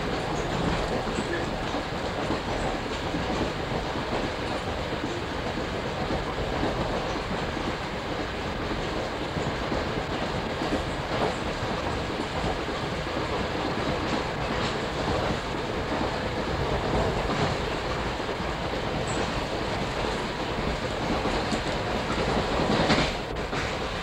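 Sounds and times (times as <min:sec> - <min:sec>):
train coach rumbling and rattling: 0:00.0 - 0:24.0.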